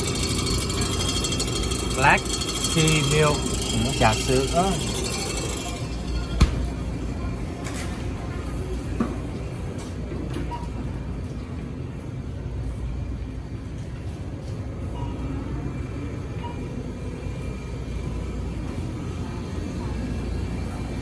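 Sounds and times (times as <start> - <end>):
low store rumble: 0.0 - 21.0.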